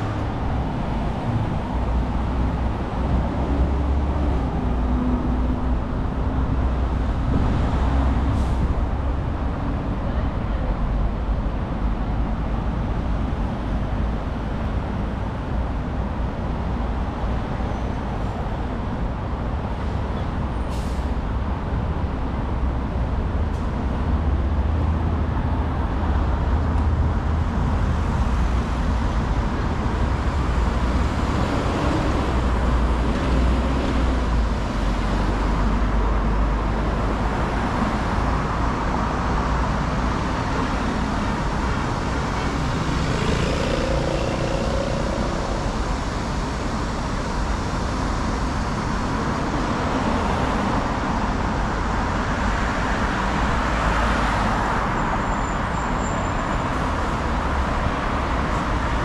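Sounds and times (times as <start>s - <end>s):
road traffic rumble: 0.0s - 59.0s
passing vehicle engine: 25.9s - 55.0s.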